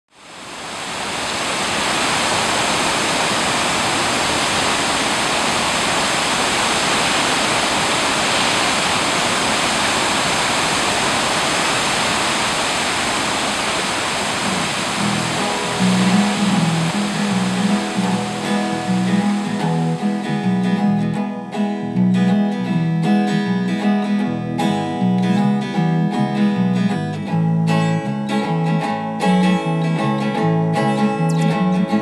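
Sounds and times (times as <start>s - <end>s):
waterfall roaring: 0.1s - 21.1s.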